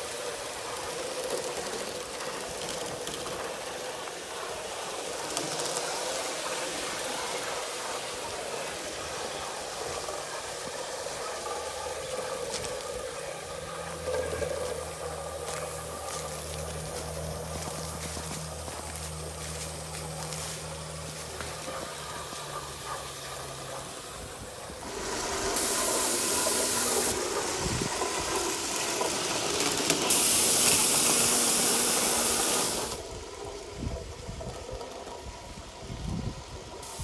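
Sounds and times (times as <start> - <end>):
steam locomotive hissing steam: 0.0 - 37.0.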